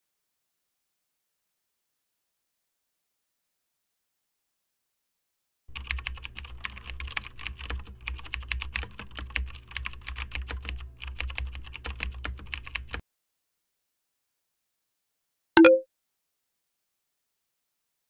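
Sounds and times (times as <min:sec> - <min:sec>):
keyboard typing: 0:05.7 - 0:13.0.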